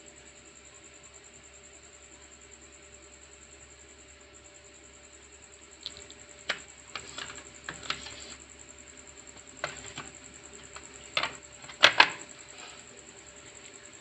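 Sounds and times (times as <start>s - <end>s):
plastic case clicks and knocks: 9.6s - 12.8s.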